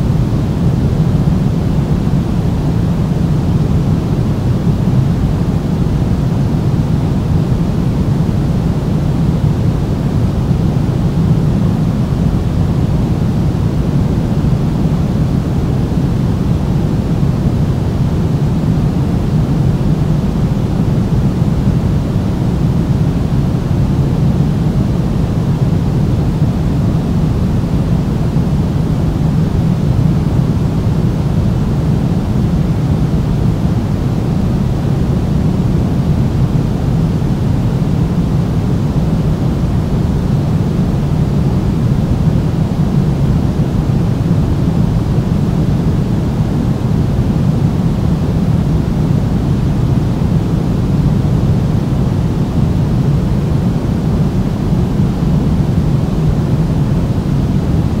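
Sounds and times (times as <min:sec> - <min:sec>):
pink noise hiss: 0:00.0 - 0:58.0.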